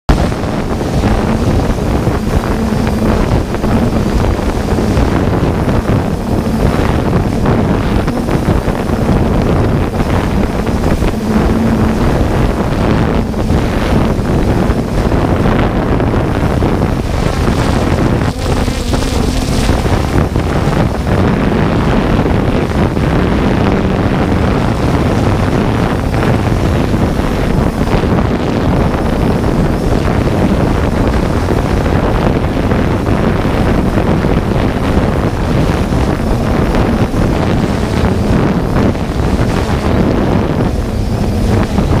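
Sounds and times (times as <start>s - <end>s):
wind rush on microphone: 0.0s - 42.0s
drone propellers humming: 0.1s - 42.0s.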